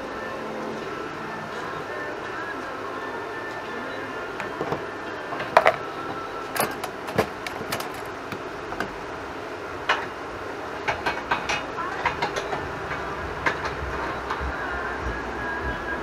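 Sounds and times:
steady background hum: 0:00.0 - 0:16.0
metal clanks and knocks: 0:04.4 - 0:09.0.

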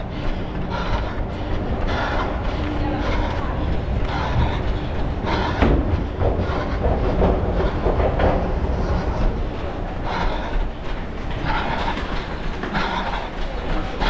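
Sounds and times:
running footfalls: 0:00.0 - 0:14.0.

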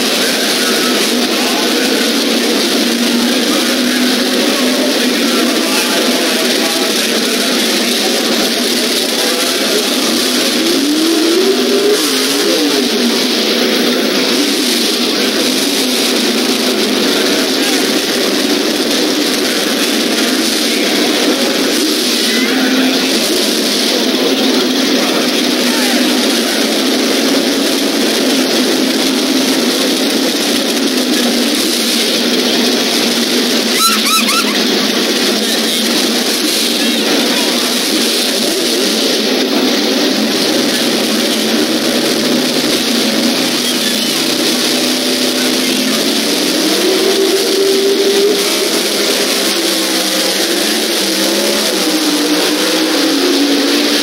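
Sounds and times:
drag racing engines revving: 0:00.0 - 0:54.0
short high chirps: 0:33.8 - 0:34.6.

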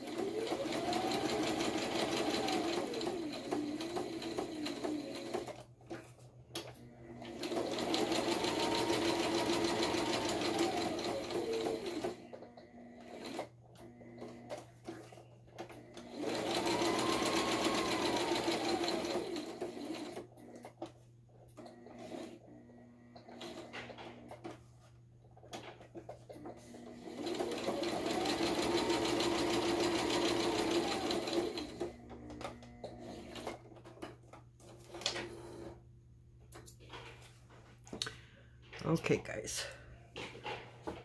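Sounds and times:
sewing machine running: 0:00.0 - 0:05.6, 0:06.8 - 0:14.6, 0:15.6 - 0:20.7, 0:26.5 - 0:33.6.

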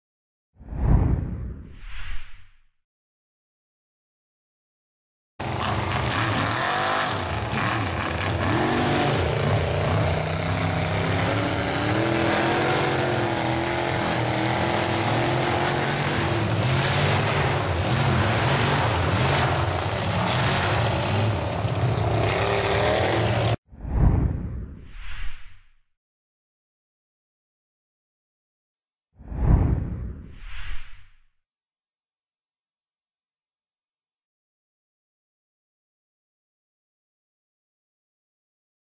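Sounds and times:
truck engine revving hard: 0:05.4 - 0:23.6.

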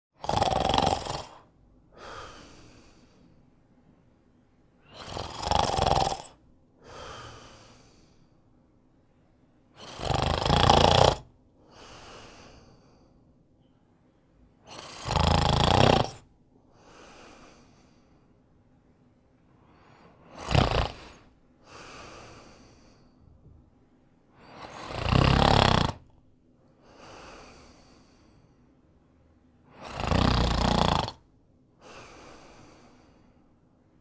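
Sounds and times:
loud snoring: 0:00.2 - 0:02.8, 0:04.8 - 0:08.1, 0:09.8 - 0:12.6, 0:14.7 - 0:17.6, 0:20.0 - 0:23.0, 0:24.4 - 0:26.1, 0:29.7 - 0:32.3
soft breath: 0:01.9 - 0:05.1, 0:06.8 - 0:09.6, 0:11.6 - 0:14.8, 0:16.6 - 0:24.9, 0:26.6 - 0:30.1, 0:31.7 - 0:34.0.

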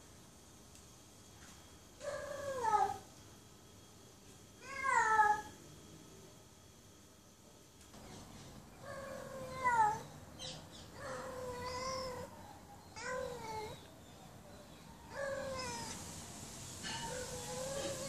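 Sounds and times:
cat meowing: 0:08.9 - 0:10.0, 0:11.0 - 0:12.3, 0:13.0 - 0:13.9, 0:15.1 - 0:16.0.

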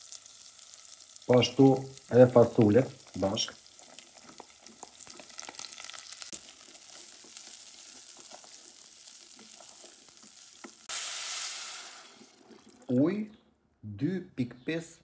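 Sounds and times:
water hissing in hot pot: 0:00.0 - 0:05.3, 0:06.2 - 0:12.9
food sizzling in oil: 0:00.0 - 0:12.9
wooden spoon stirring: 0:02.3 - 0:10.9, 0:11.9 - 0:12.9.

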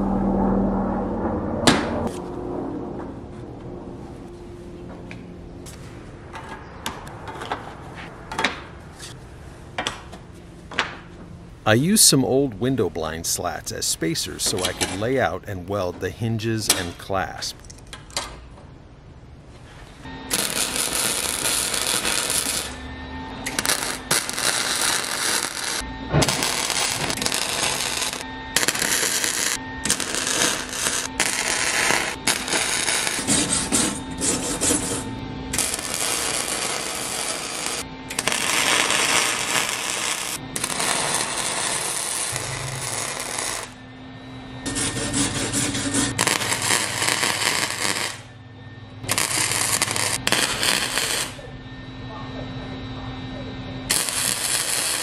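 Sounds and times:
welding arc crackling: 0:20.3 - 0:22.8, 0:23.4 - 0:43.8, 0:44.7 - 0:48.3, 0:49.0 - 0:51.5, 0:53.9 - 0:55.0.

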